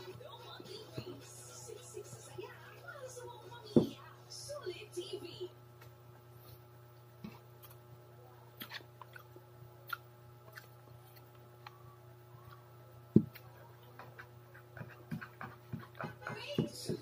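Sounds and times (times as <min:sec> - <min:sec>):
faint steady hum: 0:00.0 - 0:17.0
eating sounds: 0:08.4 - 0:17.0.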